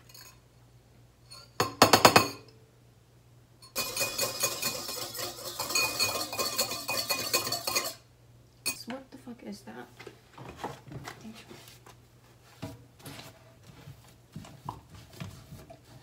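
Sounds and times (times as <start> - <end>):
whisk beating in a bowl: 3.7 - 8.0.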